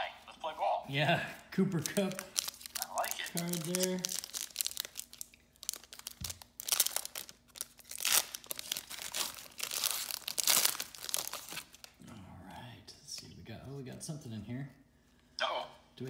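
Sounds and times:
foil wrapper tearing and crinkling: 1.8 - 12.0.

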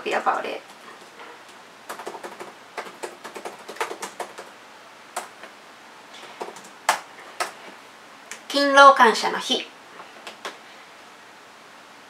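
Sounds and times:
laptop keyboard typing: 0.7 - 4.5, 5.1 - 5.5, 6.2 - 7.6.

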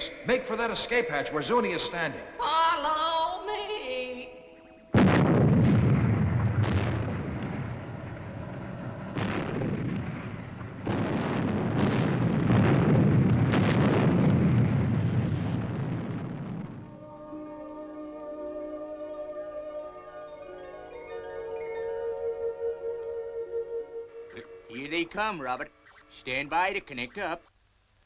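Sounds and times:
building explosion rumble: 5.0 - 17.0
sharp explosion blasts: 5.0 - 17.0.

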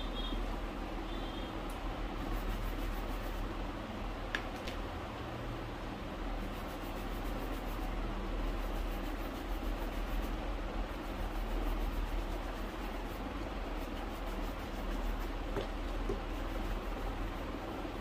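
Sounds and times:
shoe shining rubbing on leather: 6.4 - 17.6.

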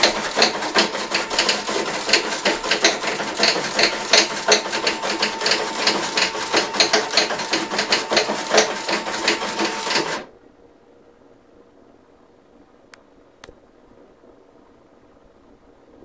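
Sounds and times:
rapid machine clatter: 0.0 - 10.3
steady machine whine: 0.0 - 10.4.

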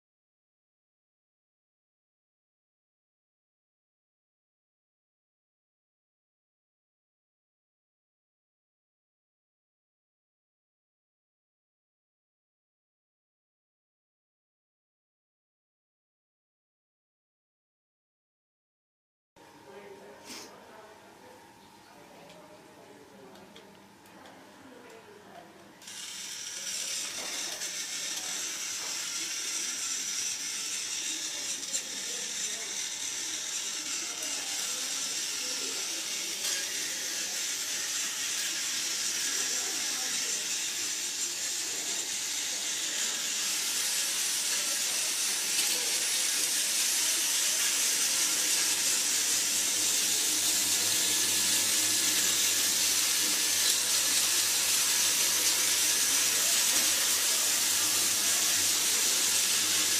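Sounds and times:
toy train motor whine: 25.8 - 59.9.

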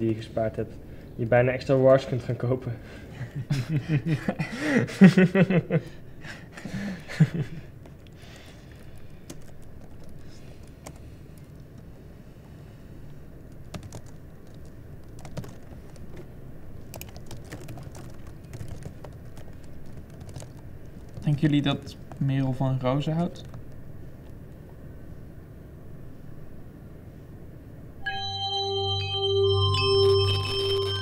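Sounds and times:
laptop keyboard typing: 7.2 - 12.0, 13.4 - 22.3, 23.0 - 24.4, 30.0 - 31.0.

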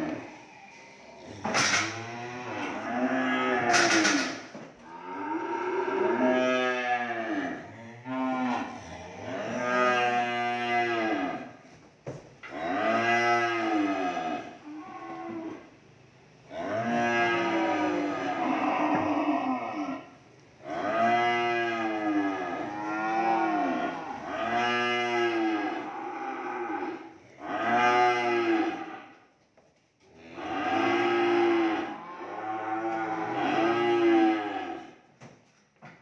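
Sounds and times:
cattle mooing: 1.2 - 11.6, 12.5 - 15.7, 16.5 - 29.2, 30.2 - 35.0.

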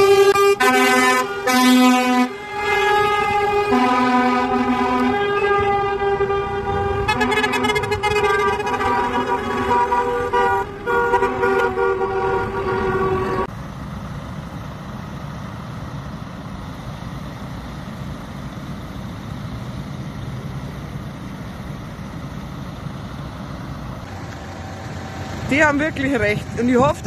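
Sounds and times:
vehicle horns sounding: 0.0 - 13.5
vehicle engines rumbling: 0.0 - 27.0.

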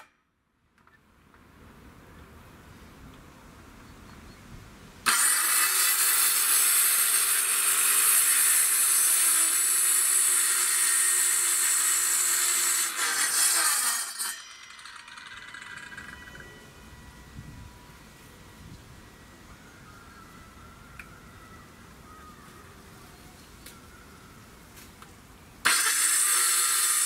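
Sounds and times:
circular saw cutting wood: 5.0 - 16.8, 25.6 - 27.0.

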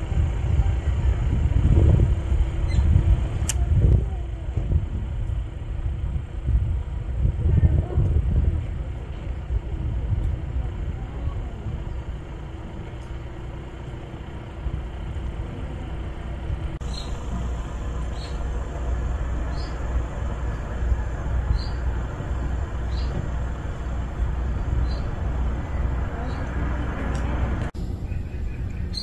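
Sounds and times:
low outdoor rumble: 0.0 - 29.0.

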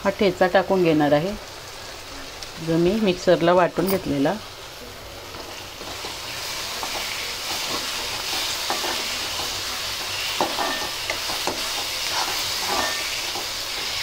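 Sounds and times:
food sizzling in hot oil: 0.0 - 14.0
metal spatula scraping pan: 5.8 - 14.0.

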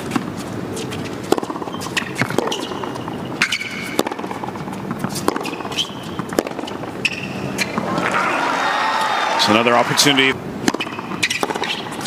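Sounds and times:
shoe squeaks: 0.8 - 4.0, 4.6 - 8.0, 10.8 - 12.0
racket striking ball: 1.2 - 8.2, 10.6 - 12.0
ball bouncing: 1.3 - 6.7, 10.7 - 12.0
crowd hum: 7.2 - 10.6.

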